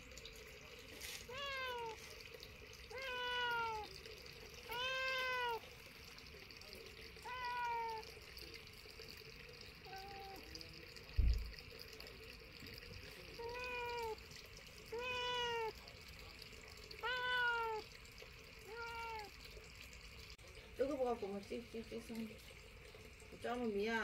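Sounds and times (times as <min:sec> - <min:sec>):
cat meowing: 0:01.2 - 0:02.0, 0:02.9 - 0:04.0, 0:04.7 - 0:05.7, 0:07.2 - 0:08.1, 0:09.8 - 0:10.5, 0:13.4 - 0:14.2, 0:14.9 - 0:15.8, 0:17.0 - 0:17.9, 0:18.6 - 0:19.4
low thump: 0:11.2 - 0:11.5.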